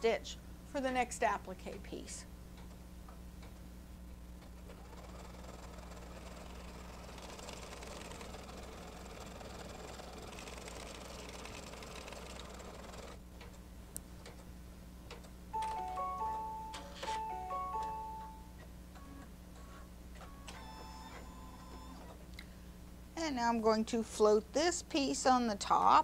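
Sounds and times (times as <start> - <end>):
embroidery machine stitching: 4.4 - 13.2.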